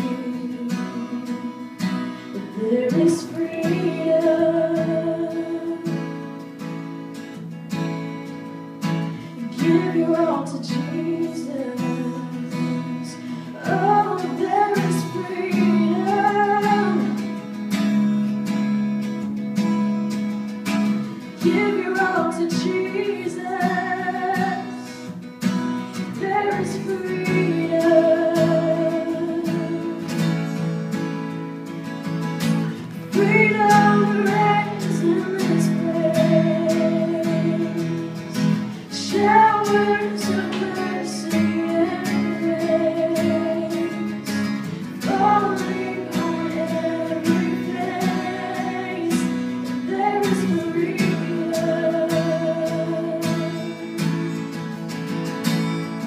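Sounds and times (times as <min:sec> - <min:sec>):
woman singing into a microphone: 0:00.0 - 0:06.2, 0:09.2 - 0:17.4, 0:21.3 - 0:25.1, 0:26.0 - 0:30.4, 0:33.0 - 0:54.4
strummed acoustic guitar: 0:00.0 - 0:56.0.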